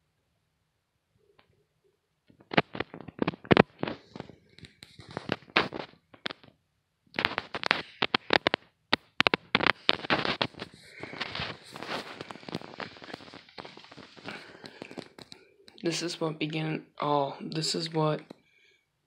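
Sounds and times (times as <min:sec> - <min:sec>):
crackle: 0:01.2 - 0:16.2
sharp clicks and knocks: 0:07.2 - 0:15.8.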